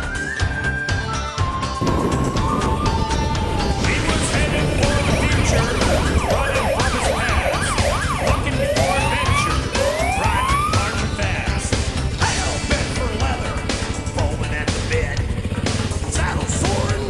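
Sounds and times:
police siren yelp and whoops: 0.4s - 11.1s
low rumble of wind and engine: 1.8s - 17.0s.

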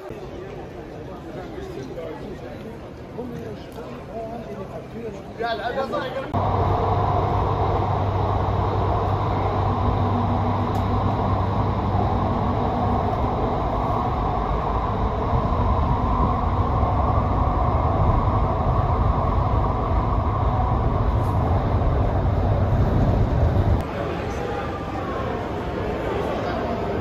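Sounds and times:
low hum: 6.4s - 23.8s
vehicle running rumble: 6.4s - 23.8s.

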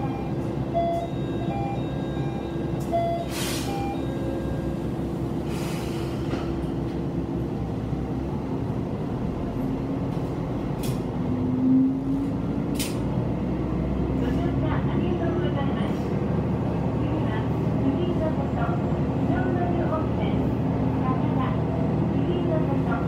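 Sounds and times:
railcar engine humming: 0.0s - 23.0s
short hisses: 3.3s - 3.8s, 5.5s - 6.3s.

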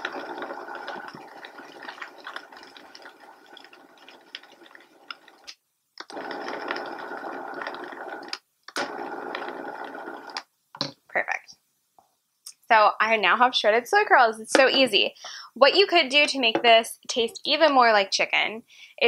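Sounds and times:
blender motor running: 6.1s - 10.4s.

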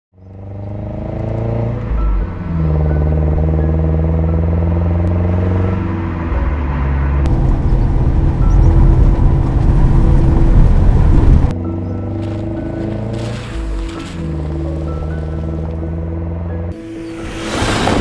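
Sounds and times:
car engine running: 7.2s - 11.5s
car rumbling on gravel: 7.3s - 18.0s.

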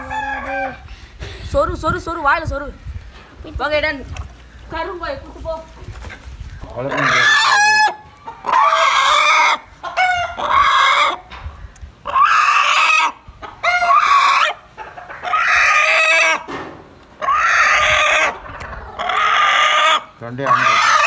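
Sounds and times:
chicken squawking: 6.6s - 11.3s, 12.0s - 16.5s, 17.2s - 21.0s.

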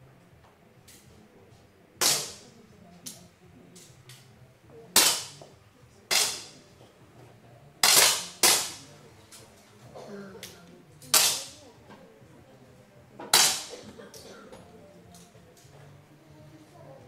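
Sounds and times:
air pistol shots: 2.0s - 2.4s, 5.0s - 5.4s, 6.1s - 6.6s, 7.8s - 8.8s, 11.1s - 11.6s, 13.3s - 13.8s
distant air pistol crack: 2.0s - 2.5s, 5.0s - 5.4s, 6.1s - 6.6s, 7.8s - 8.9s, 11.1s - 11.6s, 13.3s - 13.8s.

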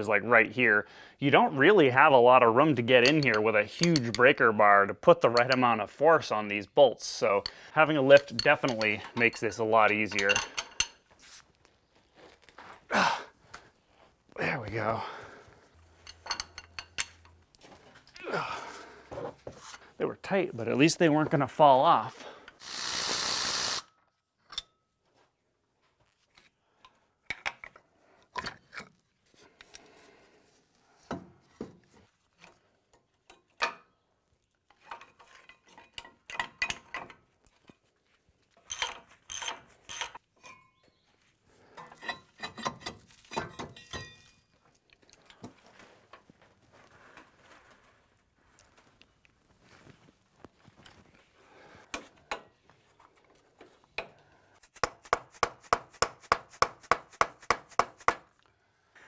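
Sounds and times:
metal clanks: 3.0s - 4.3s
metal tool clicking and knocking: 3.0s - 4.3s, 8.1s - 9.4s, 10.1s - 11.0s, 16.0s - 17.4s, 34.9s - 37.2s, 38.7s - 40.7s
hand wrench clicks: 22.6s - 23.9s, 38.7s - 40.2s.

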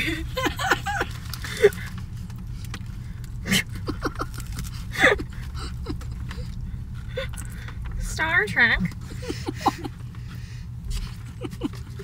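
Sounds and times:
low car hum: 0.0s - 12.0s
taco shell crunching: 0.8s - 8.0s.

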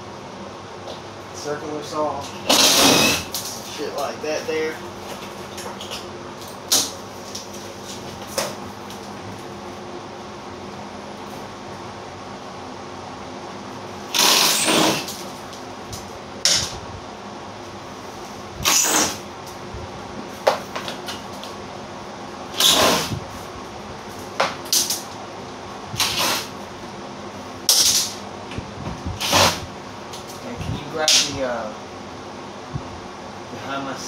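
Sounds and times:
steady hum: 0.0s - 34.0s
impact driver bursts: 2.3s - 3.5s, 14.1s - 15.2s, 18.6s - 19.2s, 22.5s - 23.2s, 26.0s - 26.5s, 29.2s - 29.7s.

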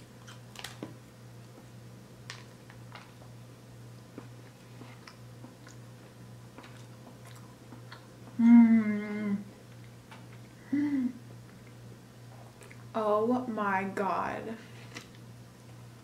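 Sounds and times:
wet mouth clicks chewing: 4.9s - 5.8s
person humming mmm: 8.3s - 9.6s, 10.6s - 11.2s.

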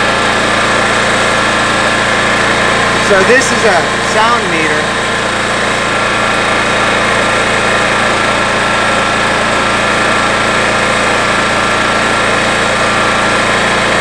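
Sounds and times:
generator engine drone: 0.0s - 14.0s.

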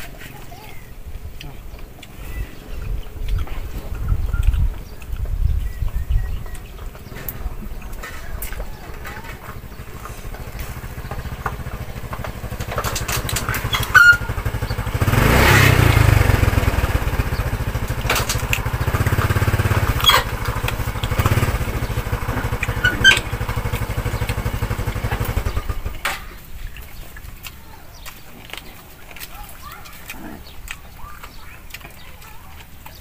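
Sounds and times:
sharp clicks: 3.2s - 15.2s, 15.8s - 33.0s
small engine running: 8.0s - 26.2s.

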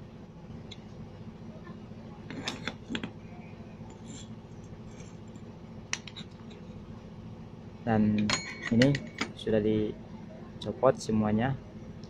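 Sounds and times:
steady low hum: 0.0s - 12.0s
small metal clinks and knocks: 8.2s - 9.4s.

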